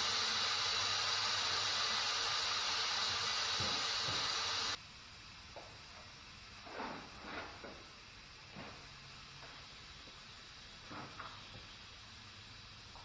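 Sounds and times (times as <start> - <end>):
air hissing from tire valve: 0.0 - 4.8.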